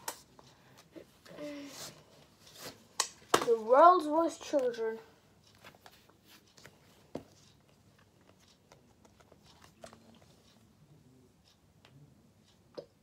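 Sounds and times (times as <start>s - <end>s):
book handling clicks and rustles: 5.5s - 10.3s.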